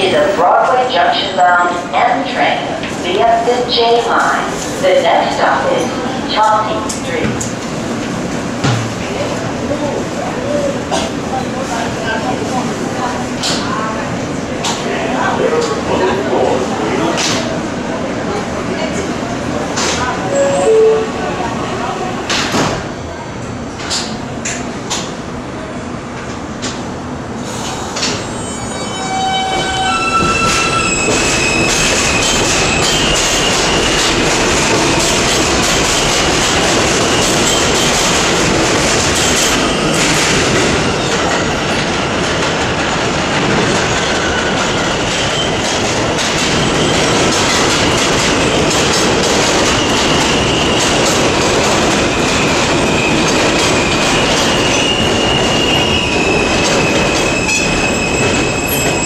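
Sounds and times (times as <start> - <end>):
high wheel squeal: 28.3 - 34.0, 52.8 - 59.0.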